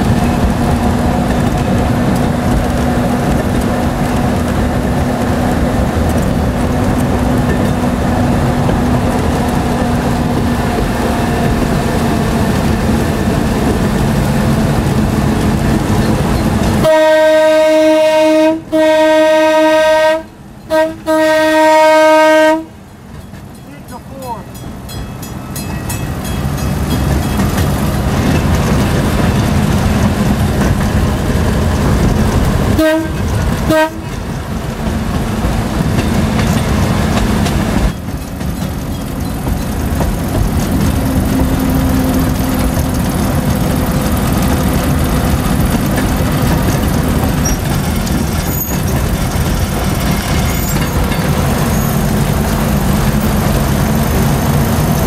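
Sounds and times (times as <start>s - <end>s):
rail motorcar rumbling: 0.0s - 55.0s
horn toots: 16.8s - 22.8s, 32.7s - 34.2s.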